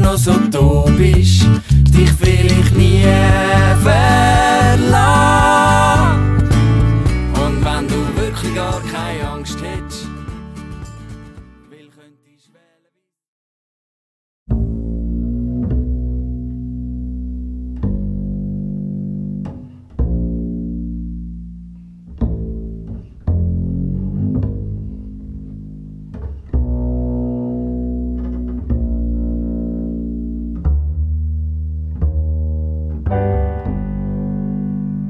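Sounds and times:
low sustained instrumental notes: 32.1 - 35.0.

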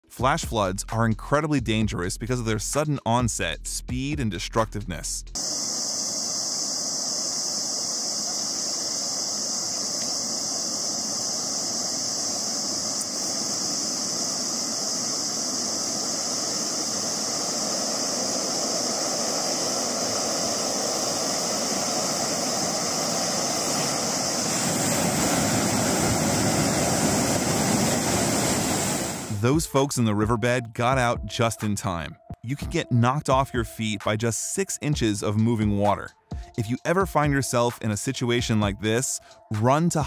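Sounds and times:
floodwater rushing: 5.4 - 29.5.

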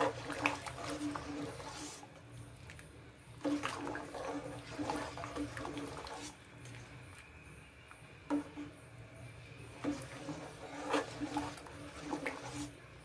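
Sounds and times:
ladle scraping a steel pan: 0.0 - 2.0, 9.8 - 12.8
wet sloshing of thick milk: 0.0 - 6.9, 9.7 - 12.8.

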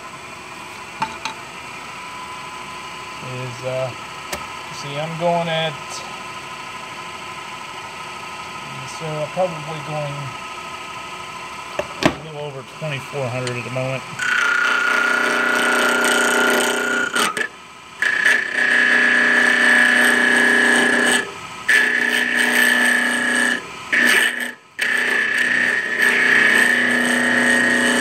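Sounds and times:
lathe tool chatter squeal: 13.1 - 28.0.

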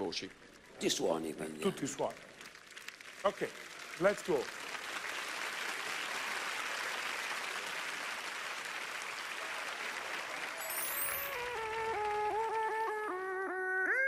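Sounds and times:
audience applauding: 0.9 - 13.6
rising high-pitched sweep: 10.6 - 12.3.

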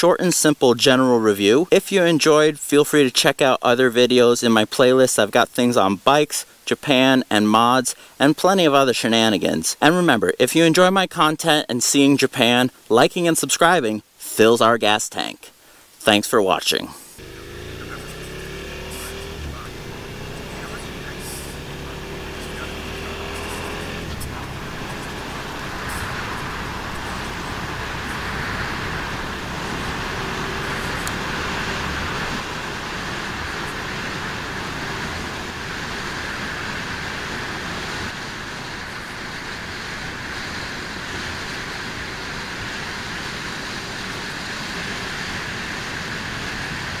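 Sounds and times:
wind and road noise: 17.1 - 47.0
motorcycle engine running: 17.2 - 39.2.

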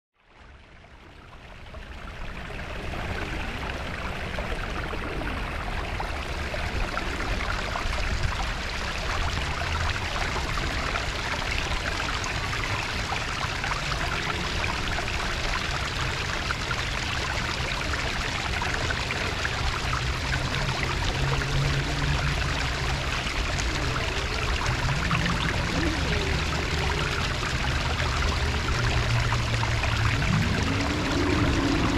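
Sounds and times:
running water rushing: 0.4 - 31.9
low rumble: 17.4 - 31.9.

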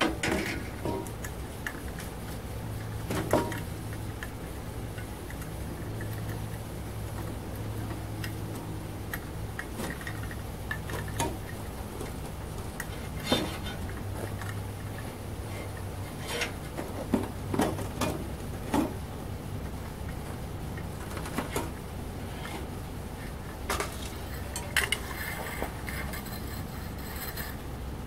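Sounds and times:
furnace burner humming: 0.0 - 28.0
hoist chain clicking and rattling: 23.8 - 27.7.

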